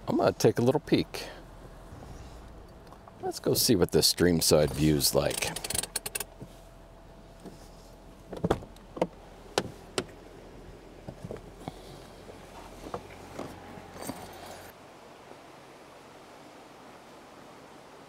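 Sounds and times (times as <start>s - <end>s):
low steady hum: 0.0s - 15.8s
car door clicks and knocks: 8.3s - 10.2s.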